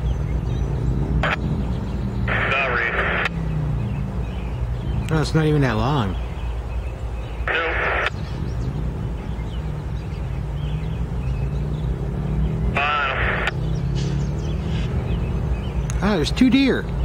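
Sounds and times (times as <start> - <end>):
diesel locomotive engines rumbling: 0.0 - 17.0.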